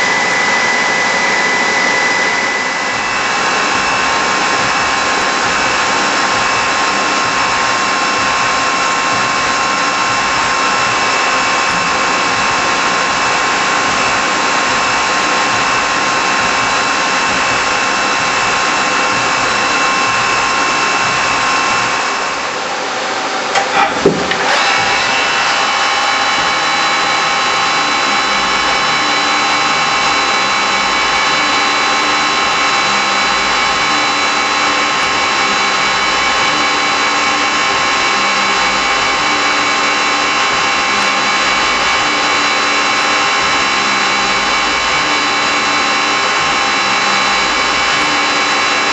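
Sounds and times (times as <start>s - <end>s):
low repeating pulse: 0.0s - 23.0s, 24.2s - 48.9s
milling machine whine and cutting: 0.0s - 48.9s
sharp knocks: 23.6s - 24.5s.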